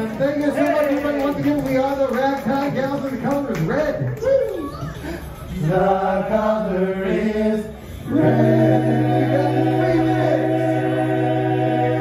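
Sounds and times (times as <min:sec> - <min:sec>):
men singing close harmony: 0:05.6 - 0:12.0.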